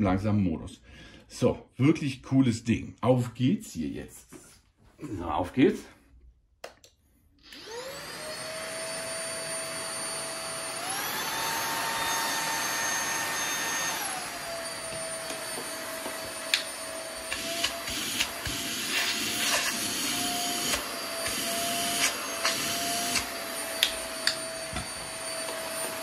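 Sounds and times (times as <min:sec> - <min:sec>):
vacuum motor whining: 0:07.4 - 0:26.0.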